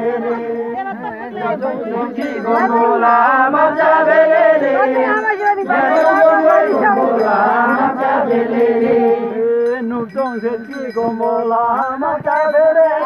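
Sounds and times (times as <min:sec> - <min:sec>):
group of women singing: 0:00.0 - 0:09.7.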